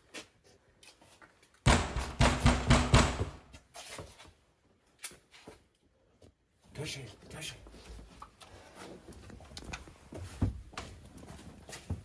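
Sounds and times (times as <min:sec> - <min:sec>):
heavy bangs: 0:01.7 - 0:03.4.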